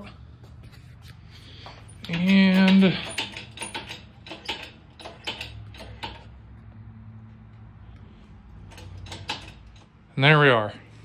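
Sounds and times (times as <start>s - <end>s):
ratchet straps creaking and clicking: 0.7s - 6.7s, 8.5s - 10.0s.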